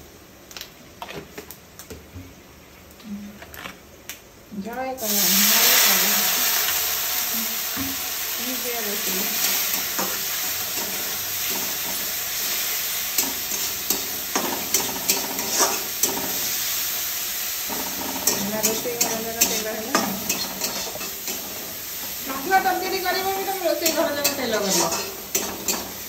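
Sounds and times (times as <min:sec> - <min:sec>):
food sizzling in a pan: 0:05.0 - 0:26.0
spatula scraping a pan: 0:13.2 - 0:16.6, 0:17.7 - 0:21.8, 0:23.6 - 0:26.0.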